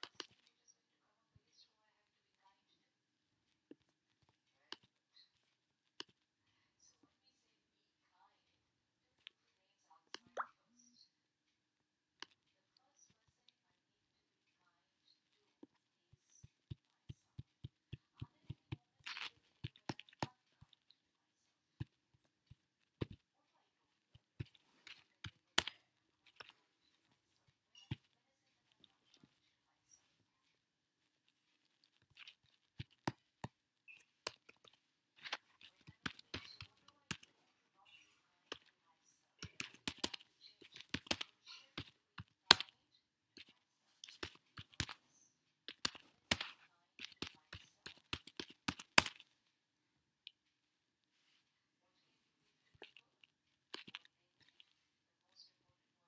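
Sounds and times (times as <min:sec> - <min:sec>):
computer keyboard typing: 0:39.4 - 0:42.7, 0:45.7 - 0:49.2.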